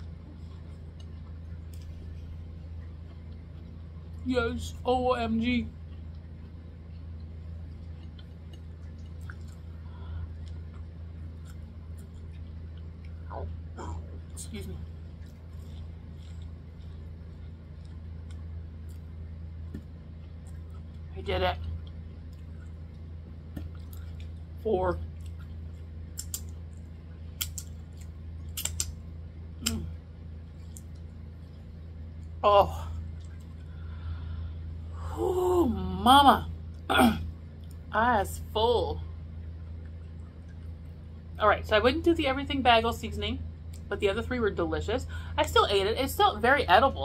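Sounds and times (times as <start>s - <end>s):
person chewing corn: 0.0s - 4.2s, 5.8s - 24.5s, 25.1s - 29.0s, 29.6s - 32.4s, 33.0s - 34.1s
steady low hum: 0.0s - 47.0s
wet mouth clicks and lip smacks: 26.1s - 26.8s, 27.4s - 29.0s.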